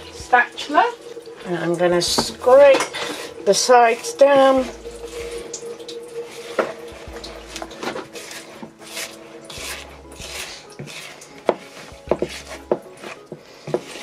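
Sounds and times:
spatula scraping plastic bowl: 0:06.2 - 0:14.0
spatula knocking against bowl: 0:09.6 - 0:14.0.

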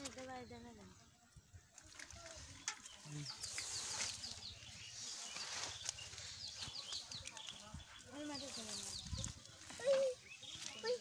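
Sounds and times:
wet pond weed and net rustling: 0:00.0 - 0:11.0
bird chirping: 0:02.3 - 0:11.0.

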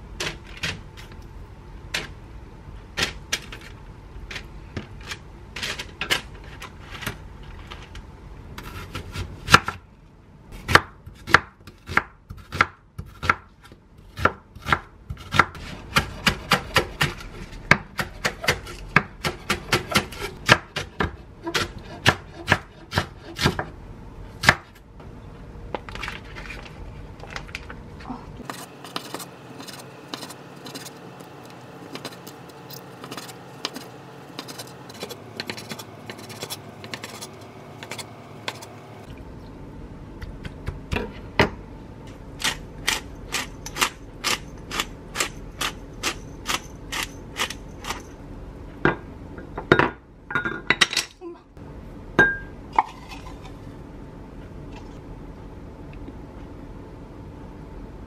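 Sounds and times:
knife chopping on wooden board: 0:14.2 - 0:23.7.

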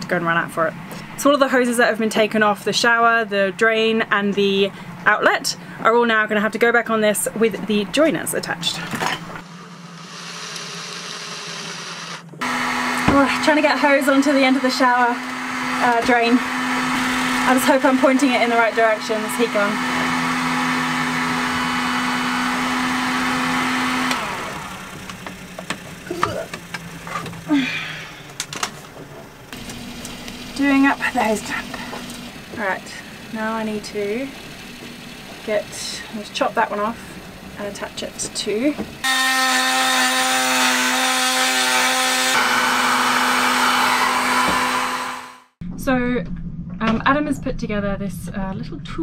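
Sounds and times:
heat gun fan hum: 0:09.4 - 0:28.7, 0:29.4 - 0:45.5.

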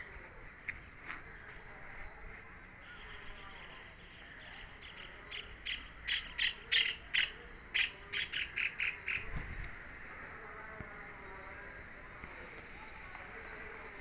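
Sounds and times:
woodpecker calling: 0:04.0 - 0:09.3.

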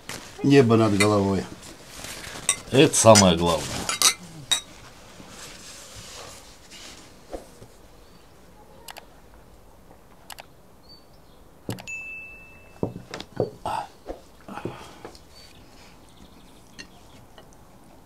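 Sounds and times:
glasses clinking: 0:02.5 - 0:04.7, 0:11.9 - 0:13.6
mouse clicks: 0:10.3 - 0:10.5
notification bell ding: 0:11.9 - 0:13.0.

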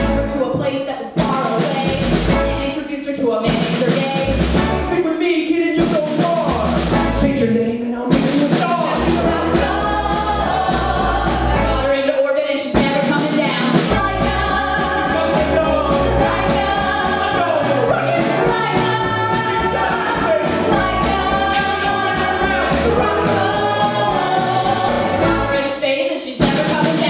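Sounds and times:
backing music with bass pulse: 0:00.0 - 0:00.8, 0:01.8 - 0:02.8, 0:04.2 - 0:05.1, 0:05.8 - 0:12.1, 0:13.8 - 0:25.8
people singing together: 0:07.3 - 0:27.0.

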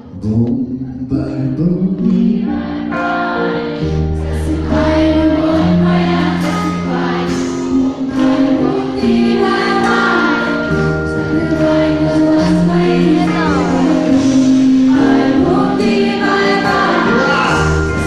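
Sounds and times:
live pop music with singing: 0:00.0 - 0:18.0.

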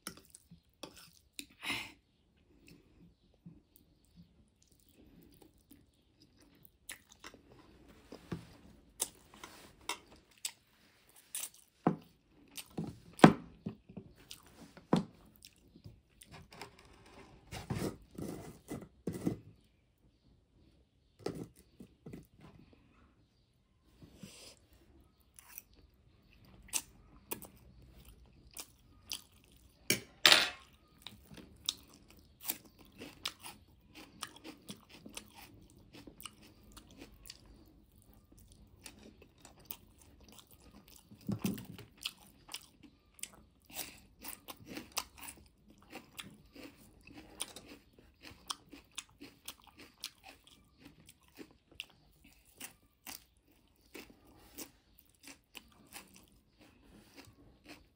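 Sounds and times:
mouth chewing and slurping noodles: 0:31.0 - 0:57.9.

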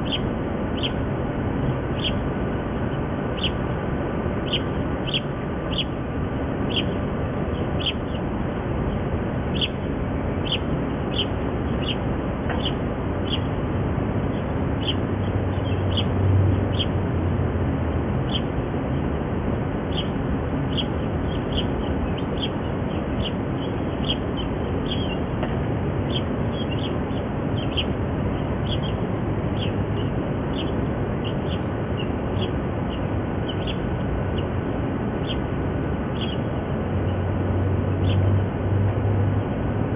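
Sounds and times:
ducklings peeping: 0:00.0 - 0:01.0, 0:01.9 - 0:02.2, 0:03.3 - 0:03.7, 0:04.4 - 0:06.0, 0:06.6 - 0:07.0, 0:07.6 - 0:08.2, 0:09.5 - 0:13.6, 0:14.3 - 0:17.0, 0:19.8 - 0:25.4, 0:26.0 - 0:35.5, 0:36.1 - 0:37.2
low background rumble: 0:00.0 - 0:39.9.

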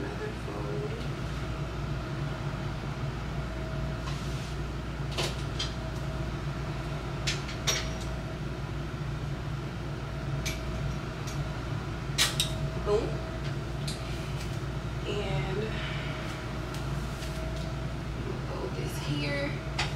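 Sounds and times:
dishwasher humming: 0:04.8 - 0:19.9.

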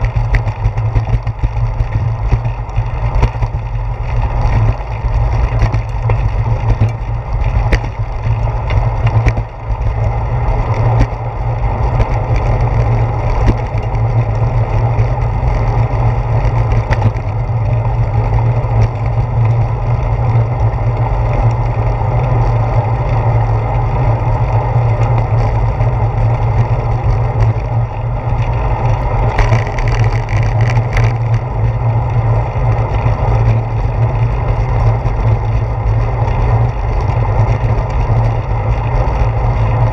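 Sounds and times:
clicks and knocks from bumps: 0:00.0 - 0:09.9, 0:11.8 - 0:14.4, 0:15.0 - 0:17.8, 0:28.3 - 0:31.5
wind and road rumble: 0:00.0 - 0:39.9.

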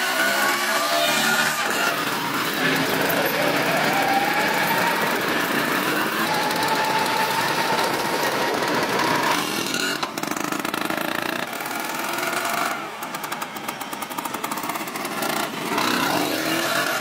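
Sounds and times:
scooter engine running: 0:00.0 - 0:17.0.

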